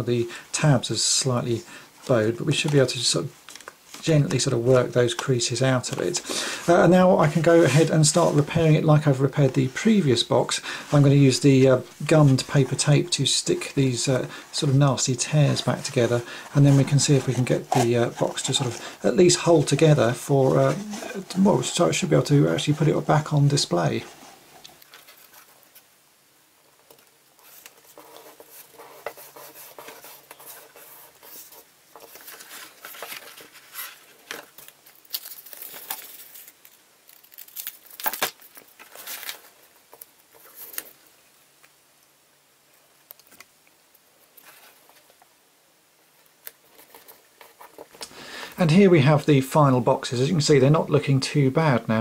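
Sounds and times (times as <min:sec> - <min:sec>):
cardboard rustling and scraping: 0:05.1 - 0:10.2, 0:14.2 - 0:25.9, 0:27.4 - 0:36.6, 0:37.6 - 0:41.0, 0:44.3 - 0:45.2, 0:46.5 - 0:48.0.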